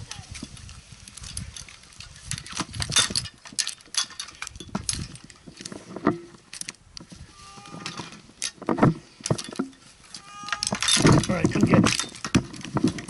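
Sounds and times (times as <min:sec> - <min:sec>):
climbing gear clinking: 0:00.0 - 0:13.0
rope scraping against tree trunk: 0:05.4 - 0:13.0.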